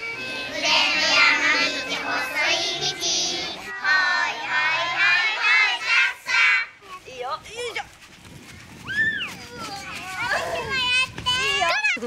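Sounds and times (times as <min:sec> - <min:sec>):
held instrumental notes: 0:00.0 - 0:05.0
children singing together: 0:00.0 - 0:06.7.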